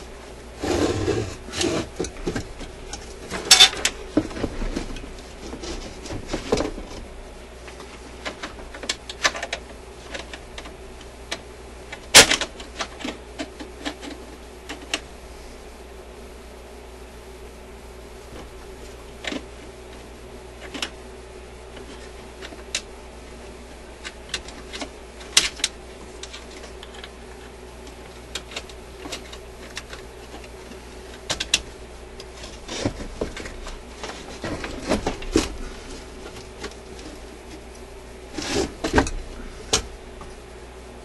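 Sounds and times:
steady low hum: 0:00.0 - 0:41.0
mechanism clattering: 0:01.5 - 0:07.1, 0:07.7 - 0:15.0.

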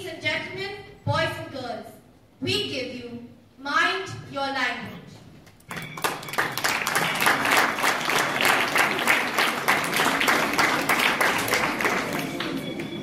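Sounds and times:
audience applauding: 0:05.7 - 0:13.0.

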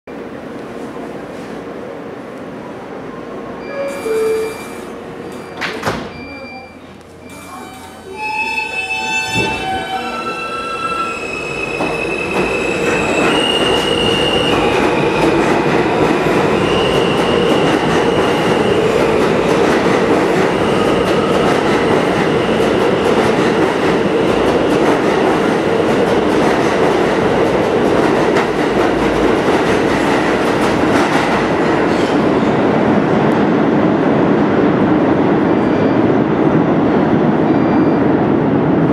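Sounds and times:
train wheels rumbling on rails: 0:09.0 - 0:38.9.

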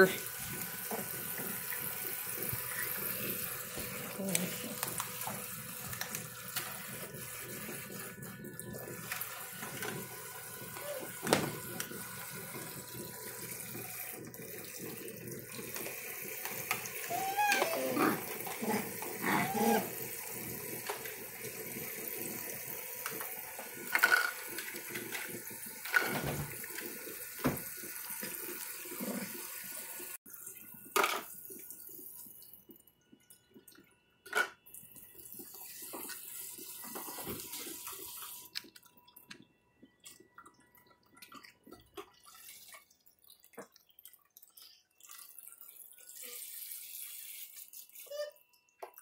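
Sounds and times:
water running into plastic basin: 0:00.0 - 0:39.3, 0:40.0 - 0:49.0.

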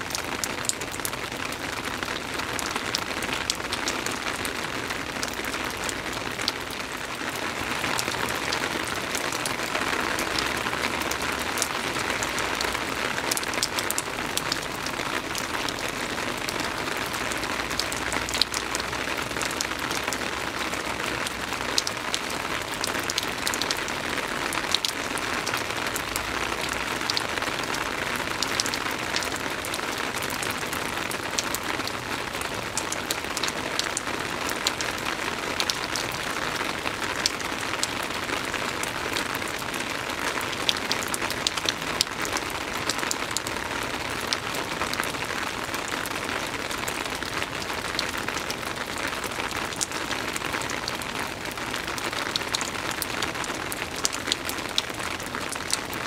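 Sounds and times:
soft rain falling: 0:00.0 - 0:56.0.

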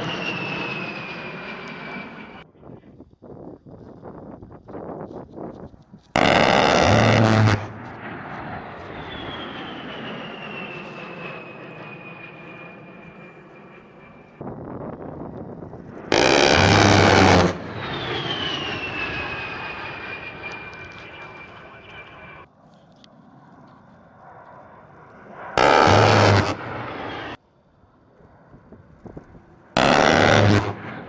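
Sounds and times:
jet engines whining: 0:00.0 - 0:02.5, 0:06.2 - 0:22.5, 0:23.2 - 0:31.0
gatling cannon firing bursts: 0:06.2 - 0:07.8, 0:16.1 - 0:17.8, 0:25.6 - 0:27.0, 0:29.8 - 0:30.9.

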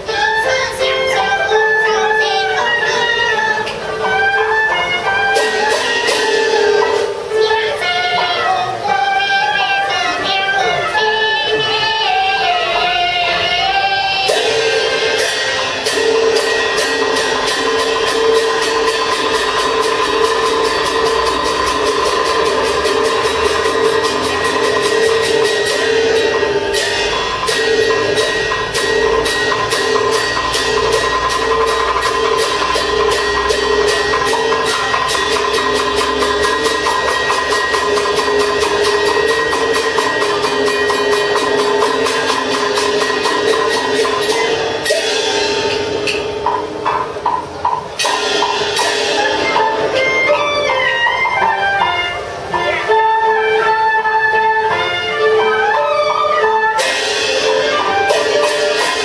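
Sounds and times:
sharp percussion clacks: 0:00.0 - 0:59.0.

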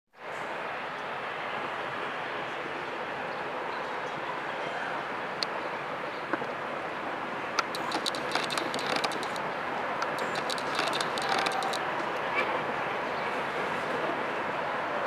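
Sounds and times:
small sharp clicks: 0:07.6 - 0:09.4, 0:10.0 - 0:11.8.

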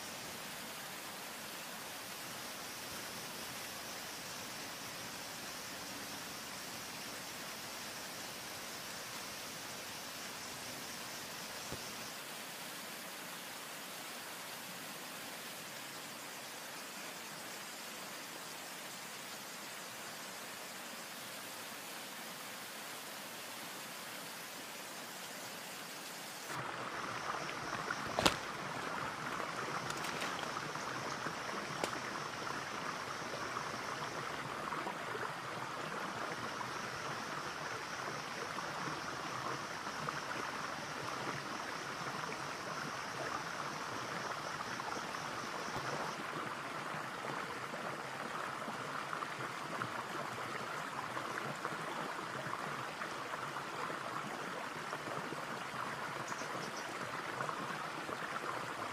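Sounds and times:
steady hiss: 0:00.0 - 0:47.0
stream babbling over stones: 0:26.5 - 0:58.9
faint clicks: 0:27.5 - 0:32.2.

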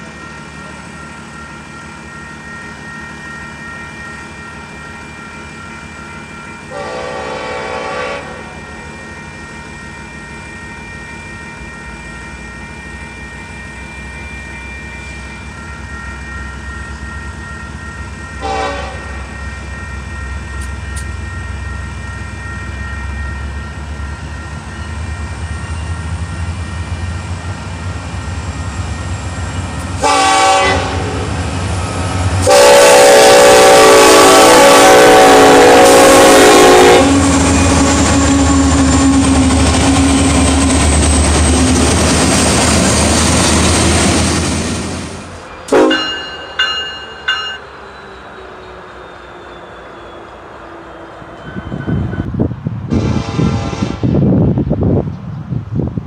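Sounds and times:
locomotive air horn blasts: 0:06.7 - 0:08.8, 0:18.4 - 0:19.4, 0:30.0 - 0:31.4, 0:32.2 - 0:40.4, 0:45.7 - 0:46.1, 0:52.9 - 0:54.3.

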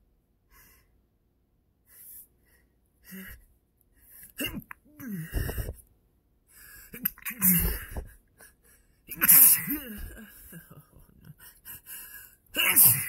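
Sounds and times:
man sneezing: 0:12.6 - 0:13.0.

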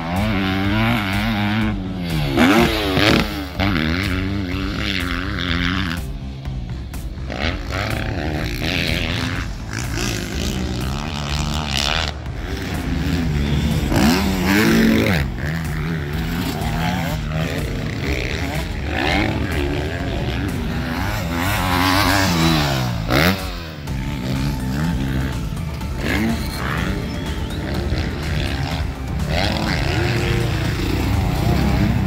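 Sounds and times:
dirt bike engines revving: 0:00.0 - 0:32.0.

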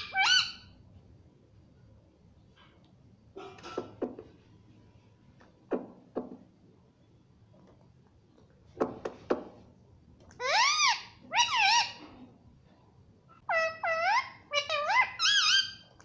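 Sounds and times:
parakeet warbling calls: 0:00.0 - 0:00.7, 0:10.4 - 0:12.1, 0:13.5 - 0:15.9.

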